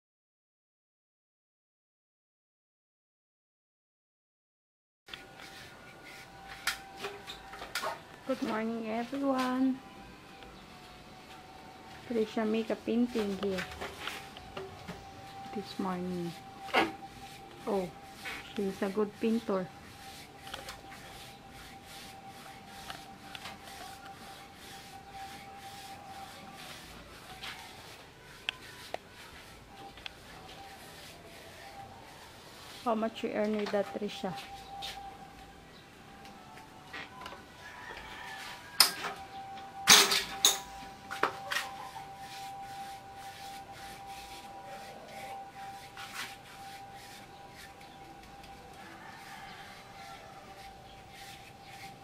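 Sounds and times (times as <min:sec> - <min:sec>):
paintbrush swishing on slats: 0:05.2 - 0:07.5, 0:11.2 - 0:35.2, 0:41.1 - 0:52.0
thin steady tone: 0:08.3 - 0:36.5, 0:37.7 - 0:52.0.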